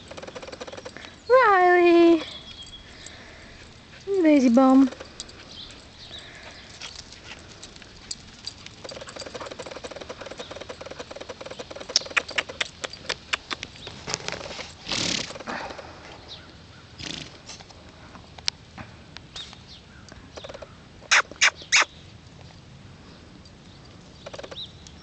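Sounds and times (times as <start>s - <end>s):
foal cropping and chewing grass: 3.1s - 16.0s.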